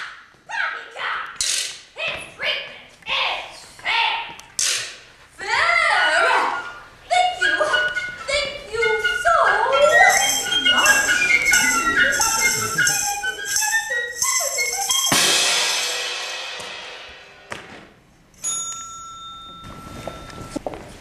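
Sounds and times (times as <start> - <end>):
stage-show melody: 5.6 - 20.7
cymbal-like crash ringing: 15.1 - 17.5
high ringing tone: 18.4 - 20.8.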